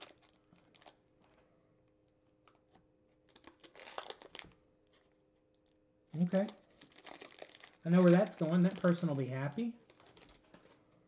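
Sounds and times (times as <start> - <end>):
foil wrapper crinkling: 0.0 - 1.0, 3.3 - 5.0, 6.2 - 10.8.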